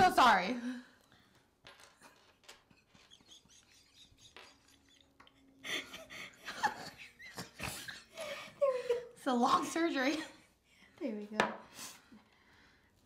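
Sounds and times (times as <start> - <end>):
breathy laughter: 3.2 - 9.1.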